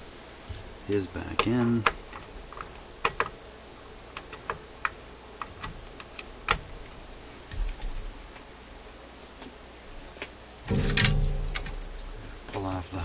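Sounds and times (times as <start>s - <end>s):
clicks of handling parts in metal chassis: 10.7s - 12.6s.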